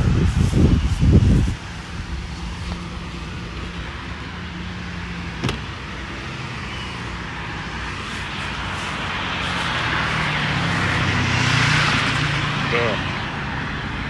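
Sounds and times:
road traffic hum: 0.0s - 14.0s.

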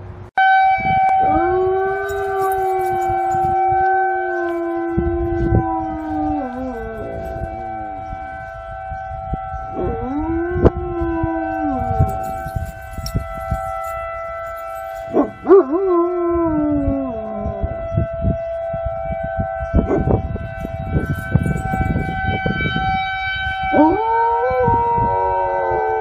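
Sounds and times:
steady high tone: 1.1s - 9.2s, 19.9s - 23.9s
dog howling: 1.2s - 7.5s.

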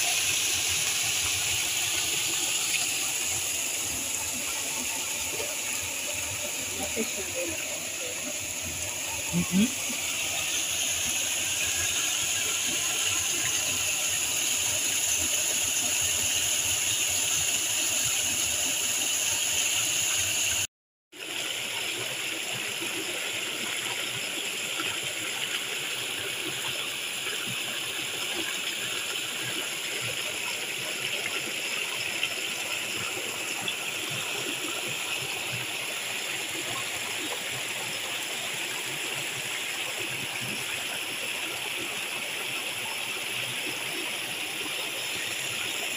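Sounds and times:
water rushing over rocks: 0.0s - 20.6s.

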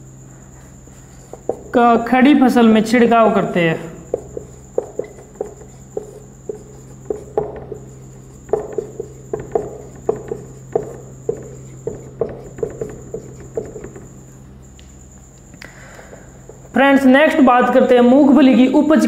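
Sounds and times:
marker squeaking on a whiteboard: 0.5s - 2.1s, 4.0s - 14.5s.

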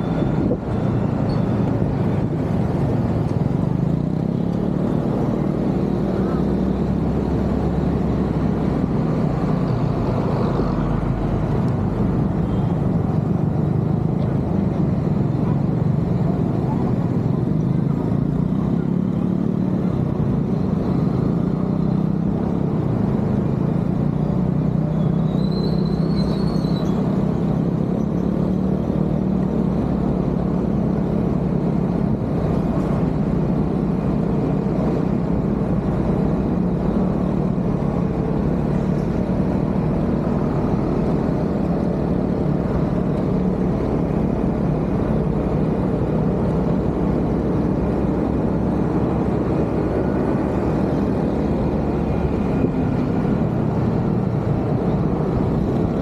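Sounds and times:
road and wind noise: 0.0s - 56.0s.

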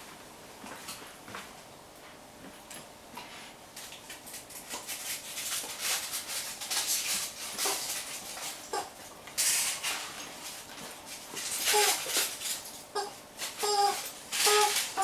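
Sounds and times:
puppy chewing plush toy: 8.7s - 8.9s, 12.9s - 15.0s
toy squeaks: 11.7s - 12.0s, 13.0s - 15.0s.

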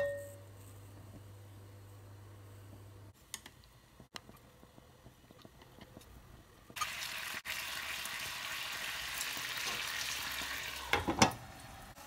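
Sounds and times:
chicken sizzling in hot oil: 6.7s - 12.0s.

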